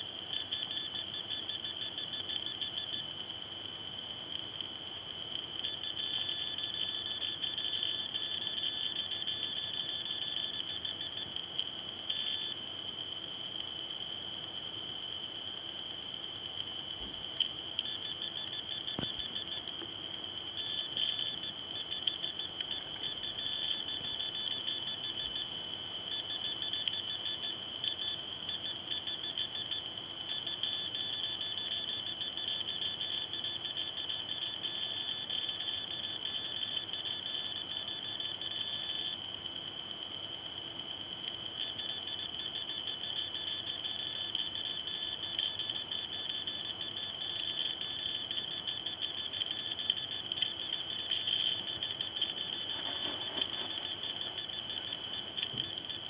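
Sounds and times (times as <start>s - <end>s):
high-pitched buzzing tone: 17.9s - 25.5s, 47.7s - 56.0s.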